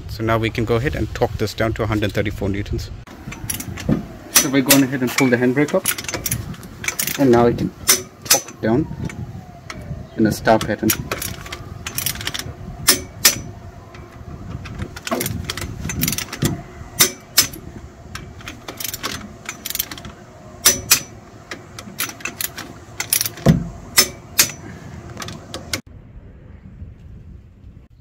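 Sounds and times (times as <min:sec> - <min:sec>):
wrench clicking on nuts: 0:03.3 - 0:09.9, 0:10.6 - 0:25.8.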